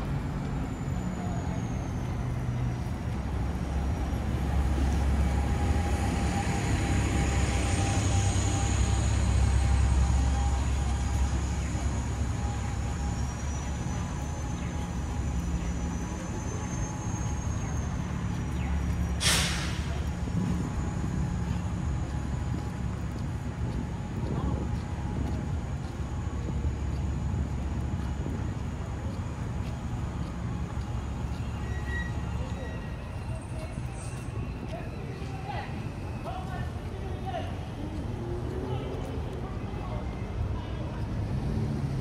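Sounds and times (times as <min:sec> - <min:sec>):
heavy vehicle engine rumbling: 0:00.0 - 0:42.0
street traffic: 0:00.0 - 0:42.0
air brakes hissing: 0:19.0 - 0:21.4.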